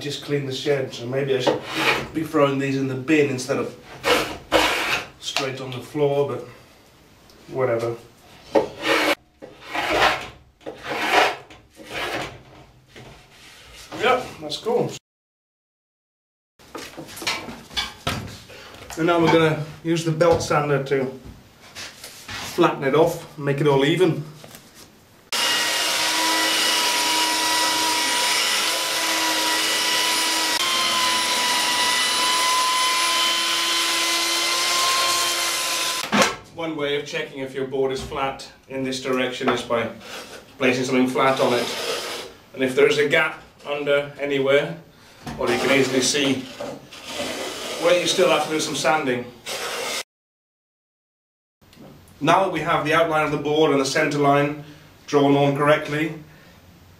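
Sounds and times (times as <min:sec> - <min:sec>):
hand plane scraping wood: 0:01.5 - 0:02.1, 0:03.9 - 0:05.1, 0:08.6 - 0:12.4, 0:45.5 - 0:48.6.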